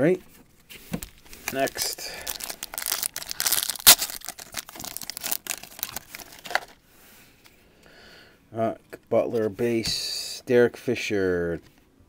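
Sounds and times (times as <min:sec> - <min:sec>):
foil pack tearing and crinkling: 0:01.1 - 0:06.8
sharp crack of foil: 0:01.6 - 0:06.4.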